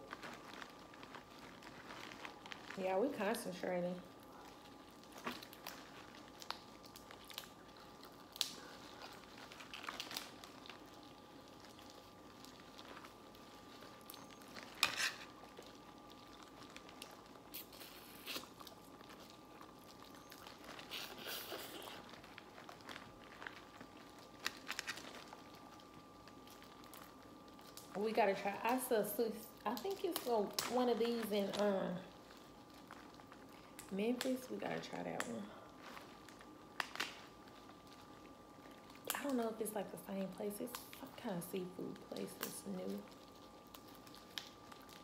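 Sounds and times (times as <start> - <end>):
crab shells cracking: 0.0 - 2.8, 3.9 - 28.0, 29.5 - 34.4, 35.2 - 39.3, 41.8 - 45.0
faint steady hum: 0.0 - 45.0.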